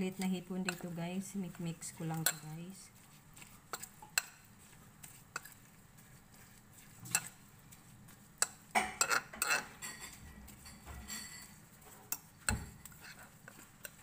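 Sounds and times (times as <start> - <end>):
spoon scraping batter in bowl: 0.0 - 14.0
metal utensil clinking on glass bowl: 8.8 - 12.8.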